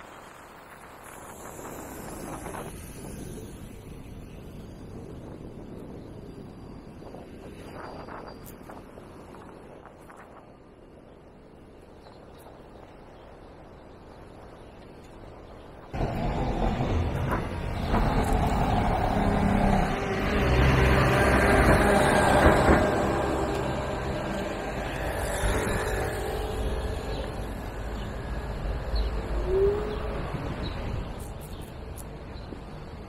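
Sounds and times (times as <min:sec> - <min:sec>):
heavy vehicle engine: 0:16.0 - 0:30.6.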